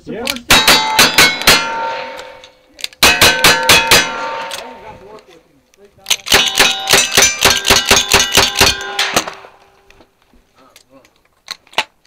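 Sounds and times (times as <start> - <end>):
rifle shots: 0.5 - 4.8, 6.1 - 9.6
ringing of struck steel: 0.5 - 4.9, 6.3 - 9.4.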